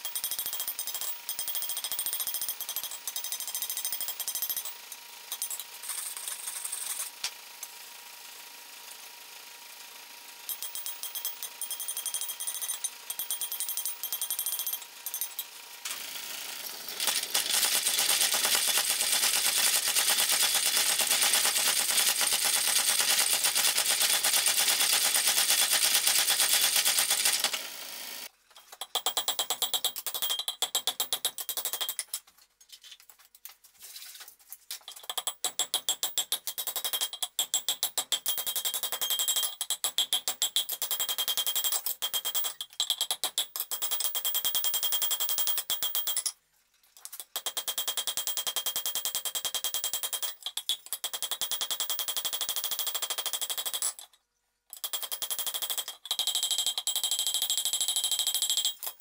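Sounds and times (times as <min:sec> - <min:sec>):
hand hammer ringing on anvil: 0:00.0 - 0:05.6, 0:10.5 - 0:15.5, 0:35.2 - 0:43.0
rapid hammer blows on steel: 0:17.0 - 0:27.6.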